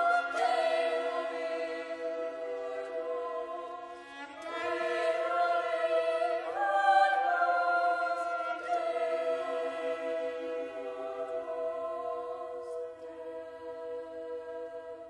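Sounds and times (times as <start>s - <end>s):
boys' choir singing chords: 0.0s - 15.0s.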